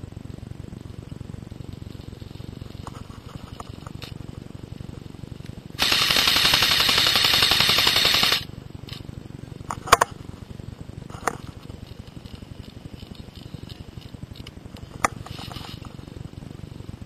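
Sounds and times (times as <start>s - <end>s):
airsoft rifle full-auto burst: 5.8s - 8.5s.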